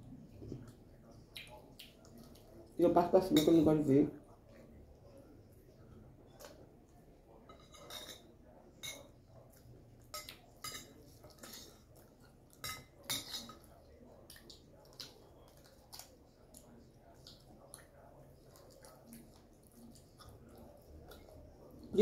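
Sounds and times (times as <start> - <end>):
spoon clinking against glass bowl: 7.4 - 9.2, 10.1 - 11.8, 12.6 - 13.7.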